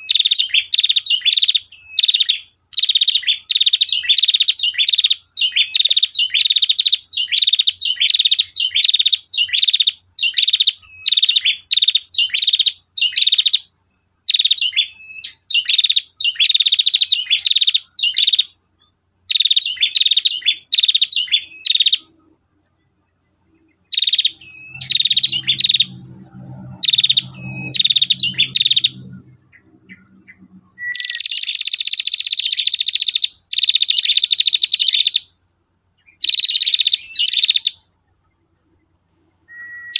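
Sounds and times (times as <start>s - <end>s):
bird buzzing trills: 14.2s - 35.3s.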